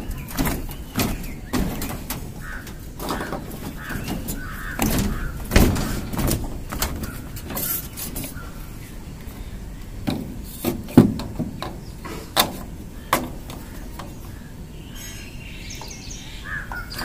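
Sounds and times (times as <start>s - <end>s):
plastic conduit knocking and clicking: 0.0s - 8.3s, 10.0s - 11.8s
bird calling: 0.0s - 10.0s, 11.6s - 17.0s.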